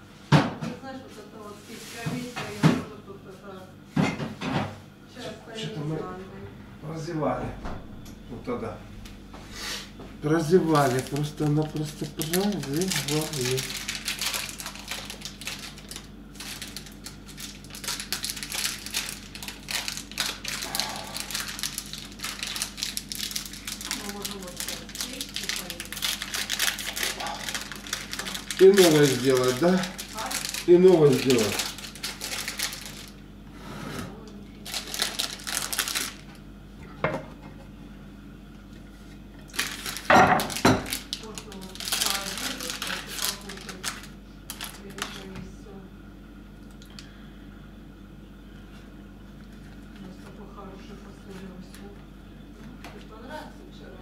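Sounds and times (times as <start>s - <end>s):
packet crinkling: 10.4s - 33.2s, 34.6s - 36.4s, 39.5s - 45.3s
plastic wrapper rustling: 10.4s - 33.2s, 34.6s - 36.4s, 39.1s - 45.4s.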